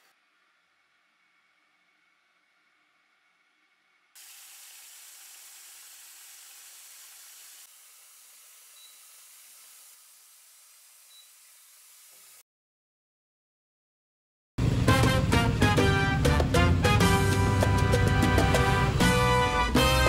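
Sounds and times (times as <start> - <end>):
tap water running into basket: 4.2 - 12.4.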